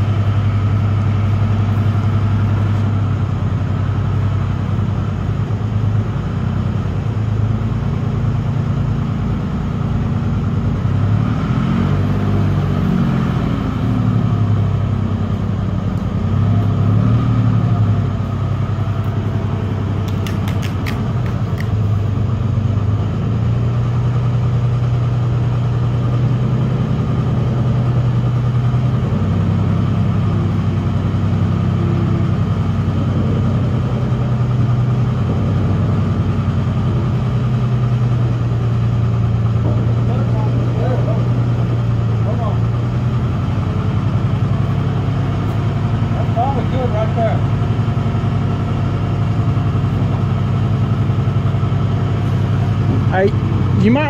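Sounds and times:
forklift engine running under load: 0.0 - 54.0
sharp clicks: 20.0 - 21.8.

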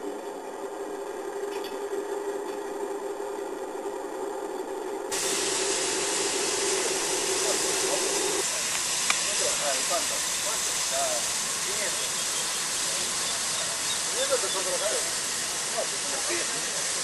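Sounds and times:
steady hum: 0.0 - 17.0
high-pitched steam hiss: 5.1 - 17.0.

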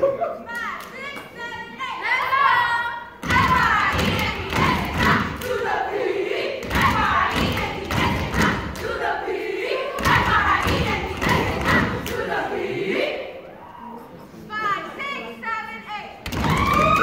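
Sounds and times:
loud group voices: 1.6 - 14.4
heavy rhythmic thumps: 3.2 - 12.6.

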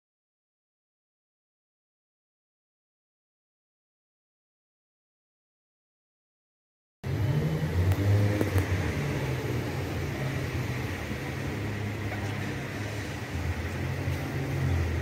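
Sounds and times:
traffic noise: 7.0 - 15.0
car engines idling: 7.1 - 15.0.

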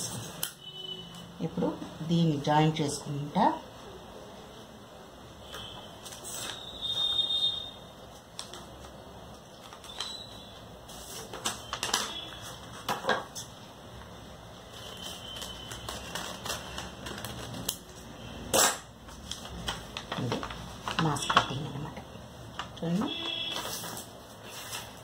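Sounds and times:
paper rustling: 5.5 - 7.2, 8.1 - 13.7, 14.6 - 18.0, 19.0 - 21.7, 22.6 - 25.0.

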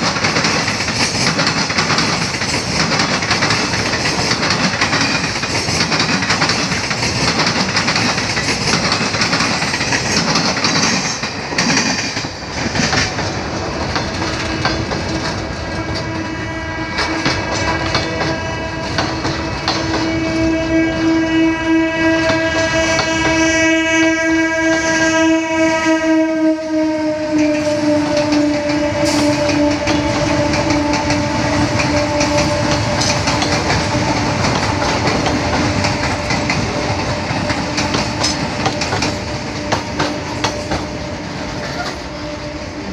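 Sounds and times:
train wheels clattering: 0.0 - 16.4, 17.0 - 20.6, 27.3 - 42.3
train horn blast: 14.2 - 42.9.

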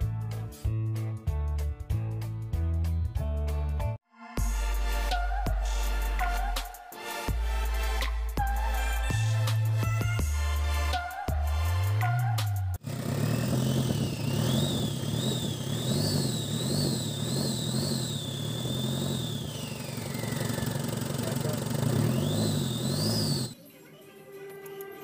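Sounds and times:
diesel engine revving: 10.3 - 23.6.

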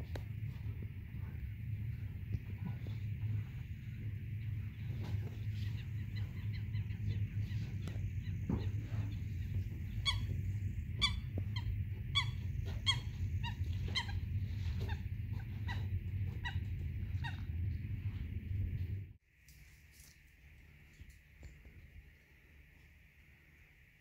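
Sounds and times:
steady low rumble: 0.0 - 24.0
bird honking calls: 2.7 - 18.2.

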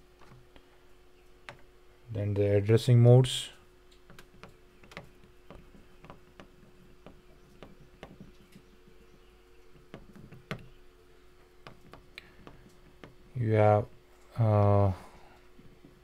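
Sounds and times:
low electrical hum: 0.0 - 16.0
stylus tapping on tablet screen: 4.1 - 8.6.

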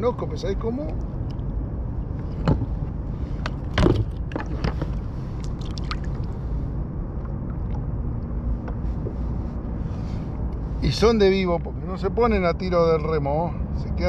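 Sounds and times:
low rumble: 0.0 - 12.3
water lapping against kayak hull: 2.2 - 6.6
knocks and clicks on boat: 3.4 - 5.0.

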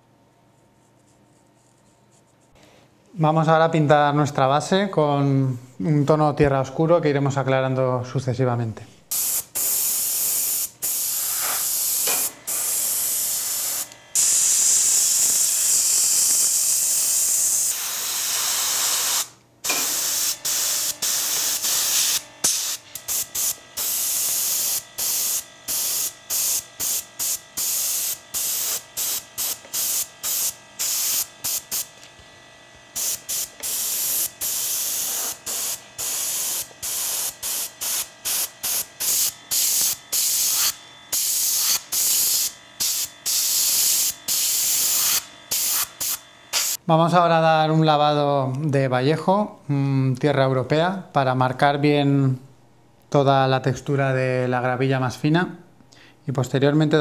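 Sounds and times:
spray paint hissing: 9.1 - 31.9, 32.9 - 46.8.

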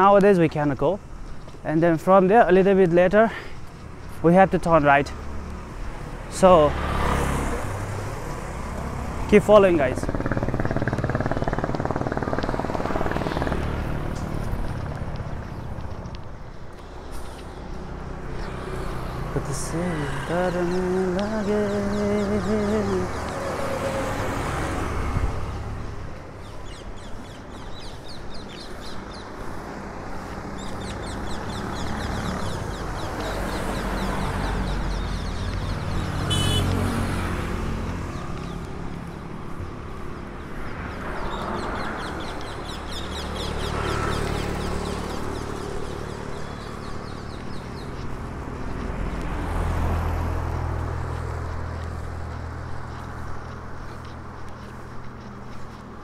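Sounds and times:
birds chirping: 0.0 - 56.0
vehicles passing: 0.0 - 56.0.

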